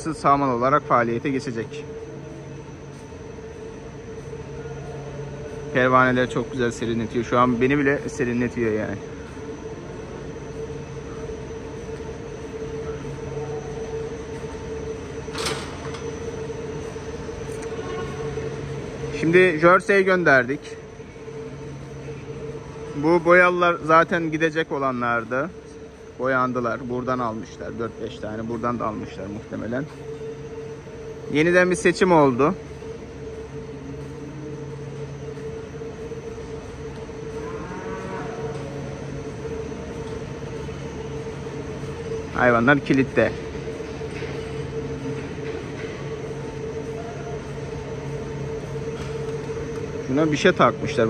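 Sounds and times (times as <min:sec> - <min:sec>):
fans humming: 0:00.0 - 0:51.0
cow mooing: 0:37.4 - 0:38.8.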